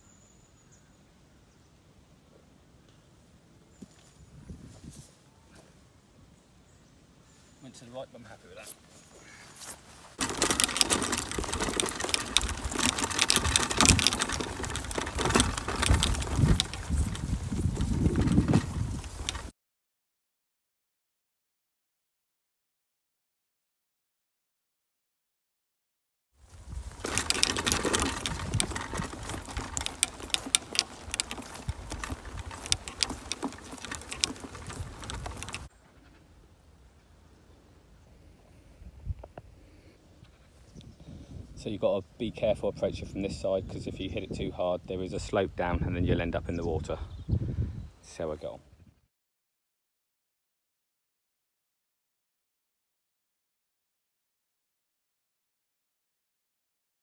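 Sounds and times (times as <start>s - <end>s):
wind rumble on microphone: 4.2s - 5.2s, 11.0s - 19.5s, 26.5s - 35.7s, 38.7s - 48.0s
footsteps on gravel and grass: 8.6s - 19.5s, 26.4s - 35.7s.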